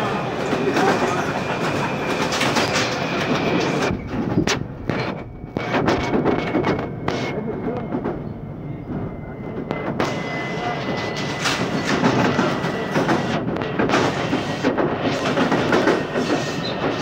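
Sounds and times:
train wheels rumbling on rails: 0.0s - 17.0s
sharp clicks and knocks: 2.1s - 8.3s, 10.9s - 17.0s.

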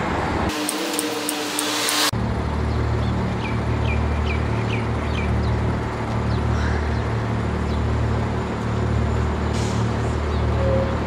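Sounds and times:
low rumble of vehicle engines: 0.0s - 11.0s.

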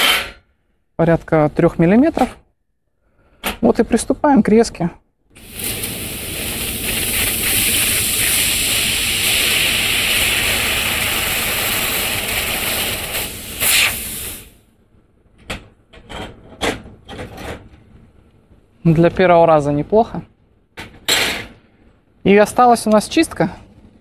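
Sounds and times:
laser cutter hissing: 5.4s - 14.6s.

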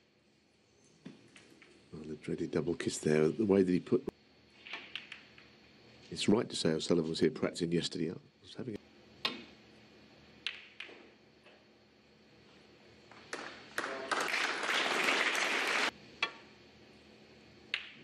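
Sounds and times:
snooker balls clicking: 4.7s - 5.4s, 10.4s - 11.1s, 17.7s - 18.0s
audience applause: 13.1s - 15.9s.

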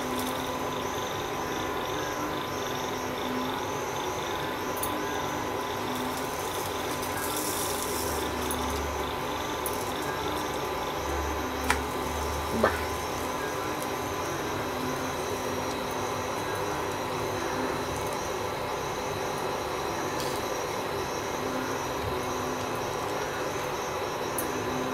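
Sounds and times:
pancake hissing in a pan: 5.6s - 15.7s.

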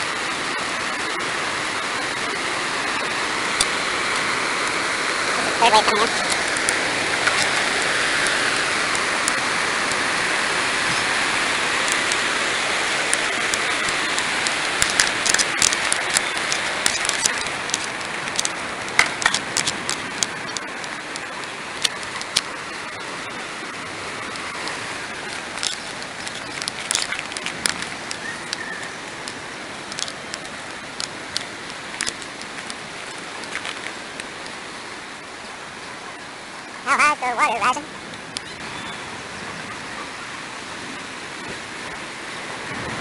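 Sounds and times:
floodwater rushing: 0.0s - 43.0s
small clicks and knocks: 13.1s - 20.6s, 25.3s - 28.6s, 29.2s - 34.6s.

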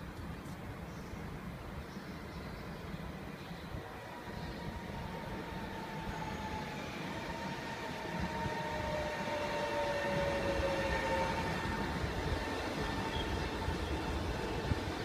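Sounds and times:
electric train whine: 1.1s - 15.0s
train wheels rumbling: 4.1s - 15.0s.

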